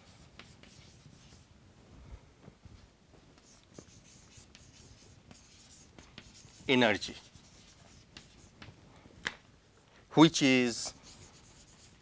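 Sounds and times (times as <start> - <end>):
chalk scratching on chalkboard: 0.0 - 1.5, 3.4 - 8.7, 10.8 - 12.0
chalk tapping: 0.1 - 1.4, 3.4 - 8.7, 10.8 - 12.0.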